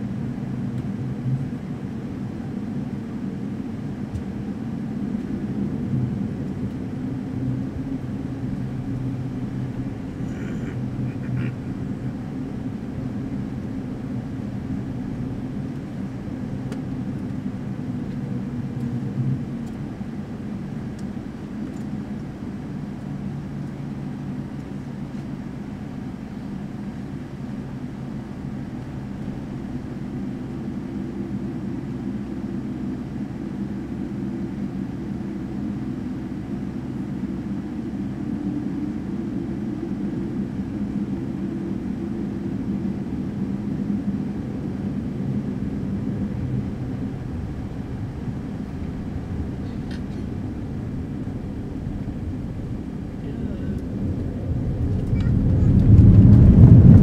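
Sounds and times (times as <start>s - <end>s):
jet engines humming at idle: 0.0s - 57.0s
higher engine note: 8.4s - 15.7s, 37.4s - 57.0s.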